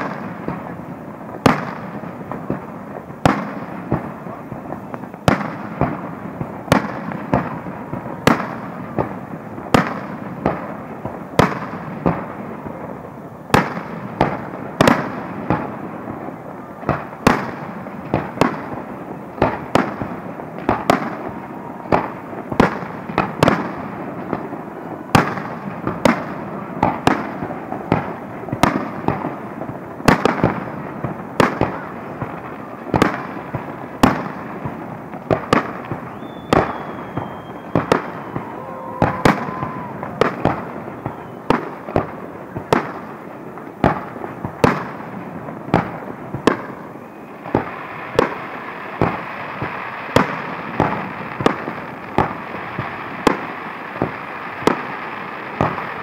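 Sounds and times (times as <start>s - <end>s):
firework shells bursting: 25.1s - 46.8s.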